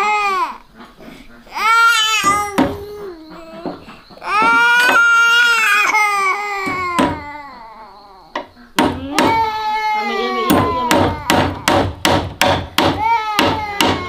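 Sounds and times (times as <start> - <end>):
baby crying: 0.0 - 0.6, 1.5 - 8.4, 9.0 - 11.9, 12.9 - 14.0
hammer striking nail into wood: 6.6 - 7.3, 8.8 - 9.5, 10.4 - 14.0.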